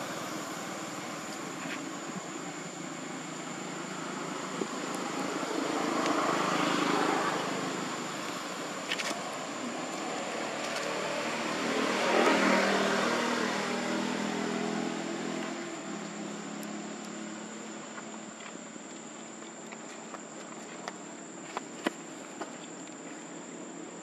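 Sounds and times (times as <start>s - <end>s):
vehicle passing by: 3.6s - 17.4s.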